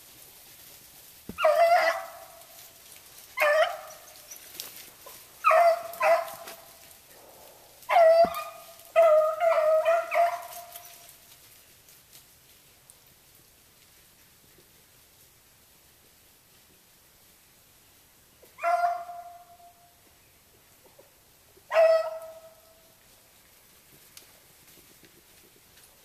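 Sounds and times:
dogs baying: 0:01.3 - 0:02.4, 0:03.4 - 0:11.0, 0:18.6 - 0:19.5, 0:21.7 - 0:22.6.

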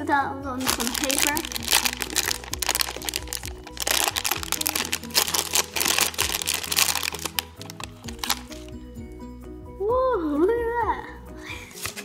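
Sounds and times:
background music: 0:00.0 - 0:12.0
plastic bag crinkling and tearing: 0:00.6 - 0:08.7.

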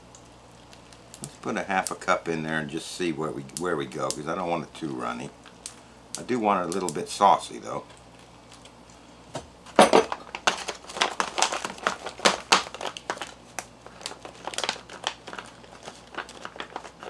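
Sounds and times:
foil pouch crinkling: 0:00.5 - 0:02.2, 0:10.2 - 0:17.0.

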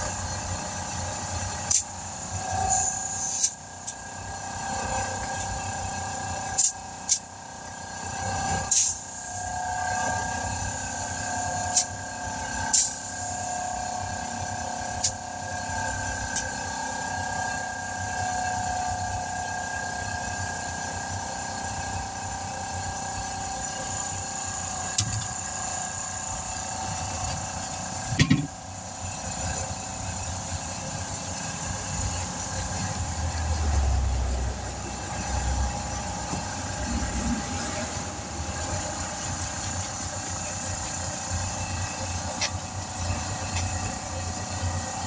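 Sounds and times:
air hose hissing into tire: 0:01.7 - 0:04.0, 0:06.6 - 0:07.3, 0:08.7 - 0:09.2, 0:12.7 - 0:13.4.

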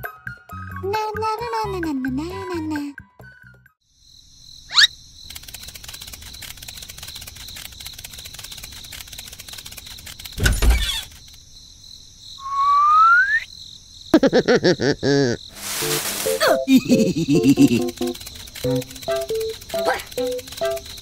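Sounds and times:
loud thump: 0:10.4 - 0:11.0
rising whistle: 0:12.4 - 0:13.5
tiny footsteps scurrying: 0:15.5 - 0:21.0.

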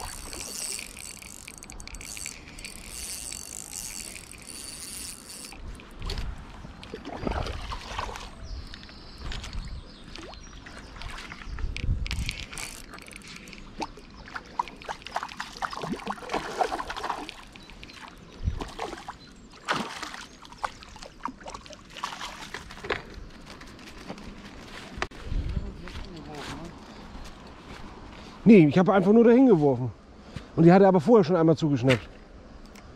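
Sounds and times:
water splashing and sloshing: 0:00.0 - 0:25.2.

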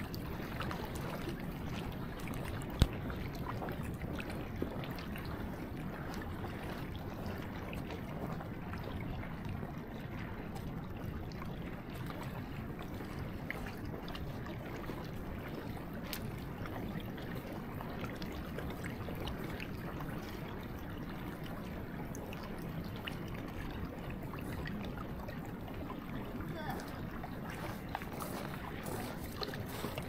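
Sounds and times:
water lapping and trickling: 0:00.0 - 0:30.0
faint ice ticks: 0:02.7 - 0:03.0.

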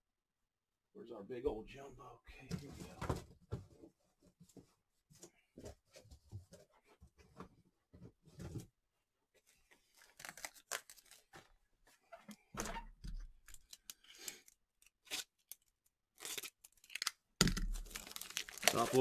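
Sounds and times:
plastic packaging tearing and crinkling: 0:09.9 - 0:11.4, 0:13.4 - 0:19.0.

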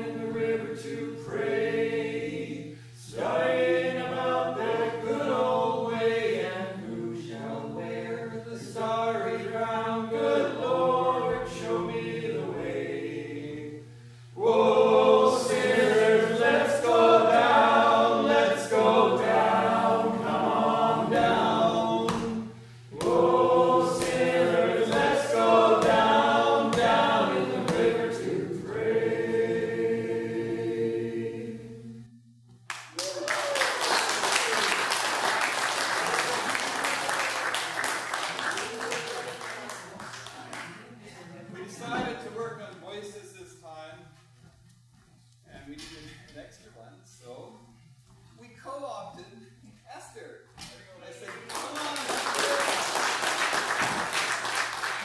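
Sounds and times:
voices singing in harmony: 0:00.0 - 0:32.3
low hum: 0:18.7 - 0:32.7.

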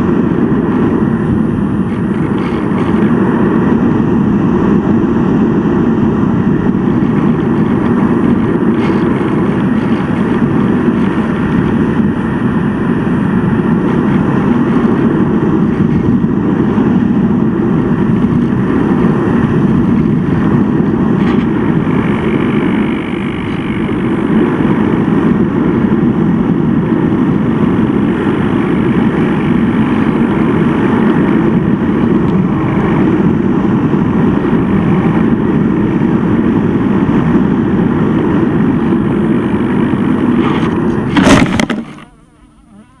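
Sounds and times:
faint hum: 0:00.0 - 0:43.0
model plane crashing in grass: 0:40.4 - 0:42.3.

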